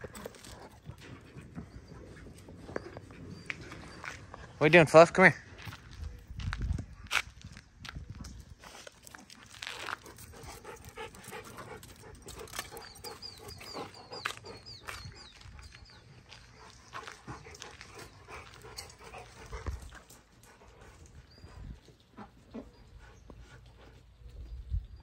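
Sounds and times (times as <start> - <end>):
dog panting: 9.8 - 24.5.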